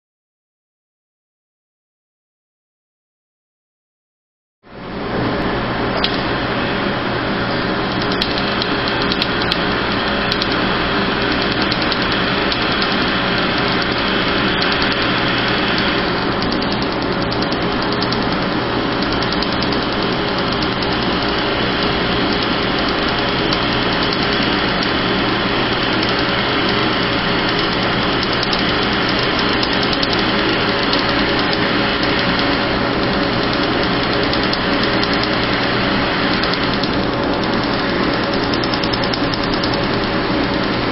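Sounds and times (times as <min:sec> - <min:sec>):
loud blowing hum of machine fans: 0:04.7 - 0:40.9.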